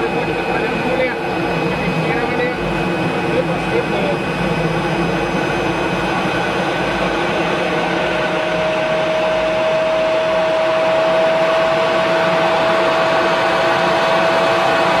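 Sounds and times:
jet engine and airflow rush: 0.0s - 15.0s
thin steady whine rising in pitch: 6.5s - 15.0s.

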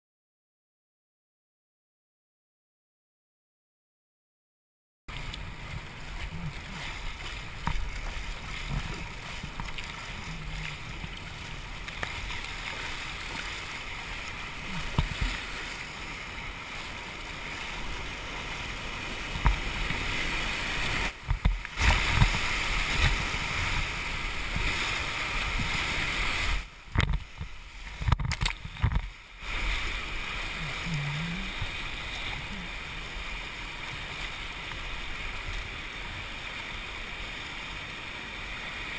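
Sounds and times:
paddle and hull knocks and splashes: 5.1s - 15.9s, 20.9s - 30.1s
whitewater rapids rushing: 5.1s - 38.9s.

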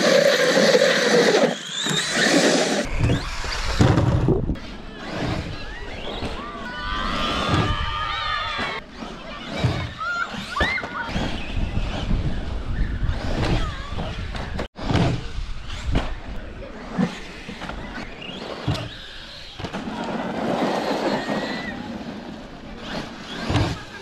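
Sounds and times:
toy truck motor whining: 0.0s - 3.9s
wind buffeting microphone: 2.8s - 6.2s, 11.1s - 16.8s
children's voices: 4.6s - 12.2s, 13.2s - 14.3s, 16.4s - 24.0s.

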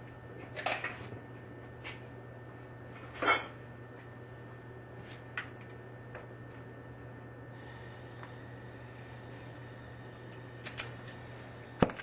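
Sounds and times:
steady low hum: 0.0s - 12.0s
metal fittings and tools clinking: 10.3s - 11.3s.

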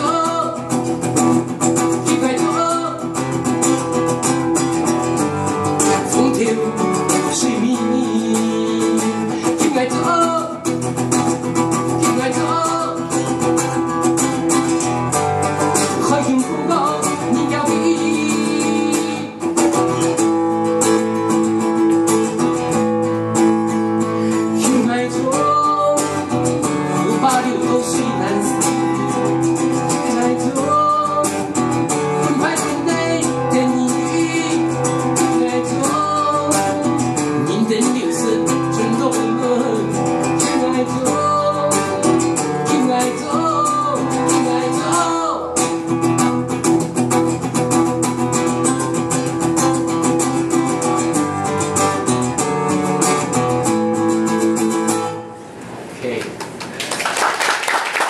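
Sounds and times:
man singing folk song: 0.0s - 55.2s
acoustic guitar strummed and plucked: 0.0s - 55.8s.

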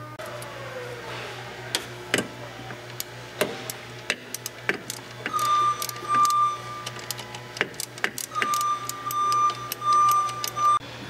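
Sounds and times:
metallic clicks and taps of tools: 4.1s - 10.6s
high-pitched tone: 5.3s - 7.0s, 8.3s - 10.9s.

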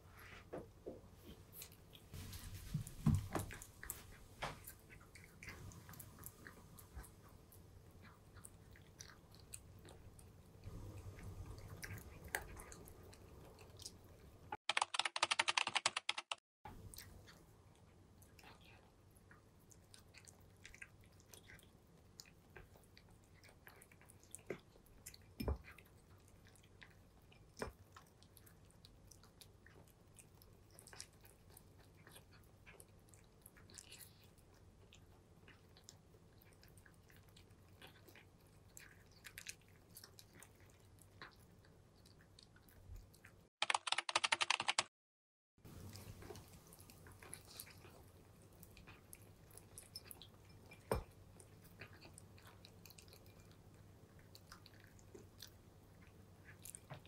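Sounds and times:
rapid clicking: 14.7s - 16.4s, 43.6s - 44.9s.

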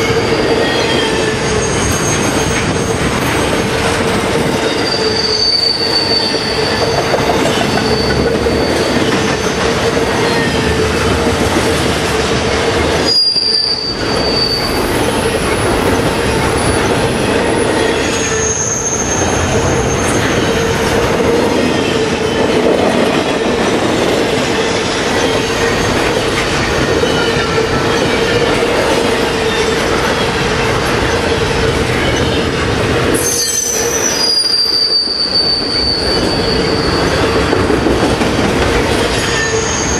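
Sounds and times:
high-pitched wheel squeals: 0.0s - 11.1s, 13.0s - 22.8s, 33.1s - 37.7s, 39.1s - 39.9s
train wheels rumbling on rail: 0.0s - 39.9s.

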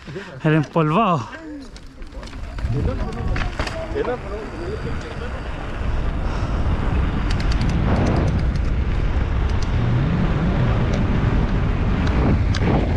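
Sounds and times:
tyres rolling over loose ground: 0.0s - 9.8s
bike clicks and rattles: 0.5s - 9.8s
wind rushing over microphone: 2.0s - 12.9s.

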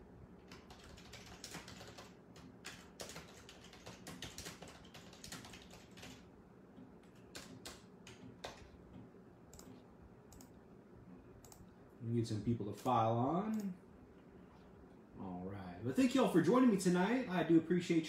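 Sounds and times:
faint keyboard typing: 0.4s - 11.8s, 12.8s - 13.8s.

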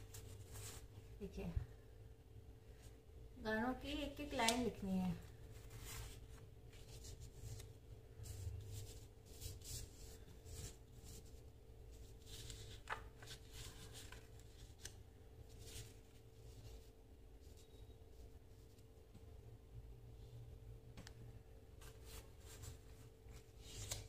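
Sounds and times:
paper sheets rustling and sliding: 12.2s - 16.9s, 21.8s - 24.0s.

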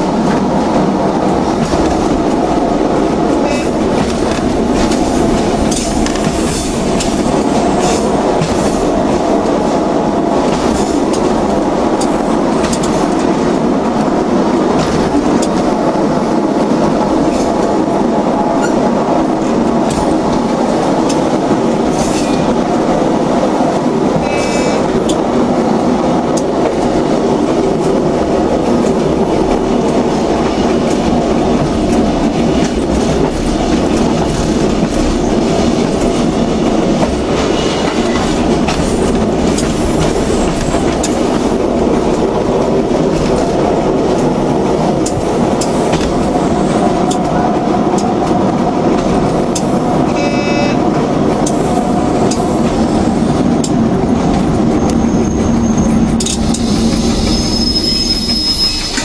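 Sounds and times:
train wheels rumbling on track: 0.0s - 59.0s
high-pitched squeal: 55.0s - 59.0s.

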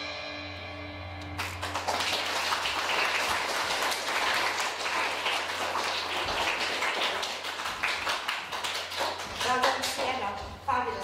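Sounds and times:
audience applauding: 1.3s - 10.2s.

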